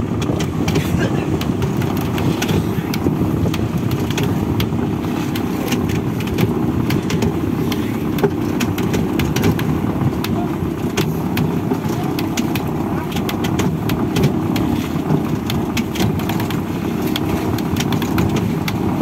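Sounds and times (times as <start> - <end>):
boat engine rumbling: 0.0 - 19.0
rope clicking on winch drum: 0.0 - 19.0.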